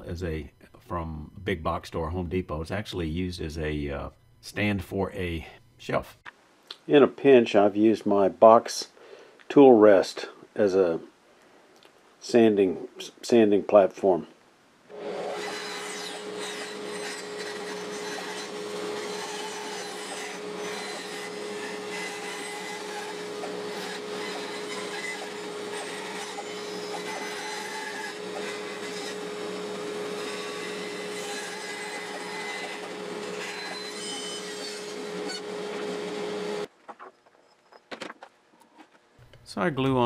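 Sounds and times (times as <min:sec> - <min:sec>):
bandsaw cutting wood: 0:14.9 - 0:36.7.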